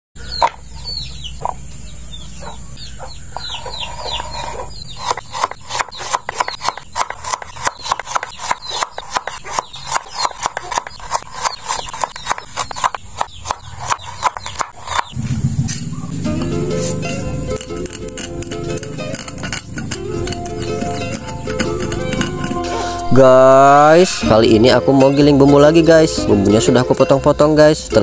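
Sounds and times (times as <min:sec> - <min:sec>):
bird chirps: 0:00.2 - 0:23.1
knife chopping on wooden board: 0:04.3 - 0:15.2, 0:16.4 - 0:22.7
low hum: 0:15.1 - 0:24.9.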